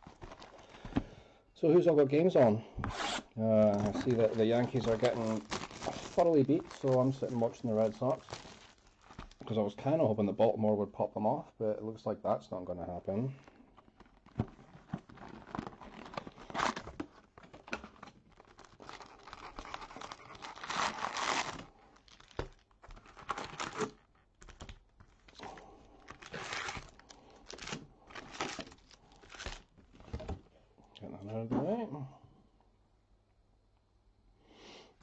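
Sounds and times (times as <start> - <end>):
plastic wrapping tearing and crinkling: 2.9 - 9.5, 13.9 - 30.1.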